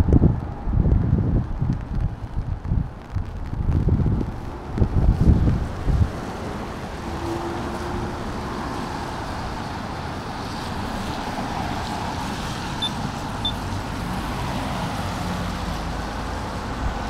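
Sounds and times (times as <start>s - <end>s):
traffic on wet road: 0.0s - 17.0s
short high chirps: 12.8s - 13.6s.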